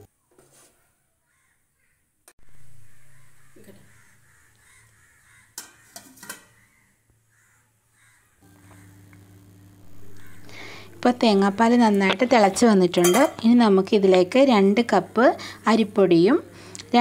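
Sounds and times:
crows cawing: 1.2s - 2.1s, 2.8s - 9.1s, 9.9s - 11.0s
low hum: 2.4s - 4.1s, 8.4s - 17.0s
metal lid clinking on pot: 5.6s - 6.5s, 13.0s - 13.5s.

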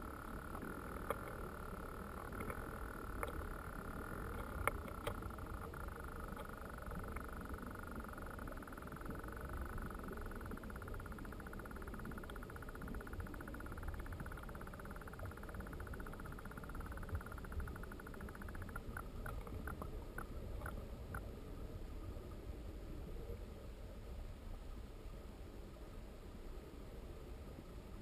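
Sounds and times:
light ticks: 0.0s - 21.3s
faint steady hum: 0.0s - 28.0s
muffled creek water underwater: 0.0s - 28.0s.

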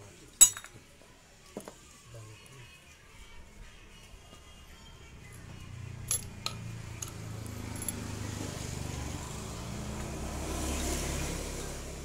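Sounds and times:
passing vehicle engine rumble: 5.2s - 12.0s.

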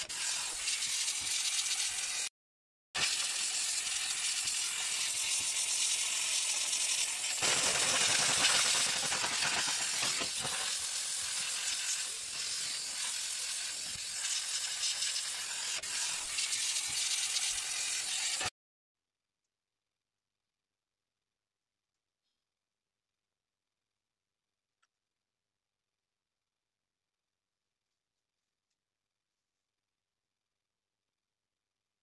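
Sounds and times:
steam cleaner jet hissing: 0.0s - 2.3s, 3.0s - 18.5s.

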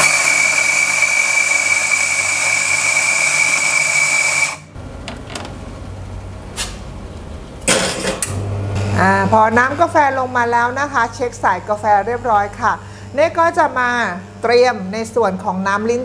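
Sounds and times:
coffee grinder grinding: 0.0s - 4.7s.

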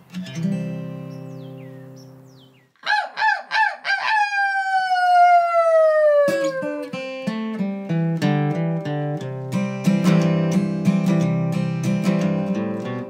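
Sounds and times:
acoustic guitar strumming: 0.0s - 2.6s, 6.3s - 13.0s
rooster crowing: 2.8s - 6.9s.

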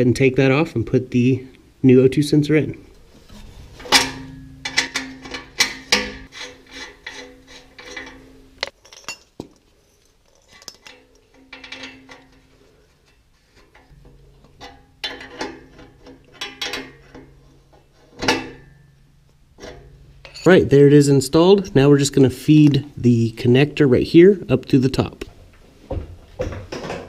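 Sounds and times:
metal tool clicking and clinking: 3.9s - 12.5s, 13.7s - 17.4s, 19.6s - 20.6s.

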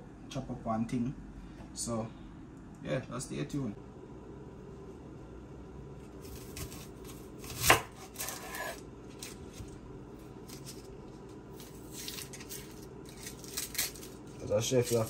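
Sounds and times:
knife chopping on cutting board: 6.2s - 9.3s.

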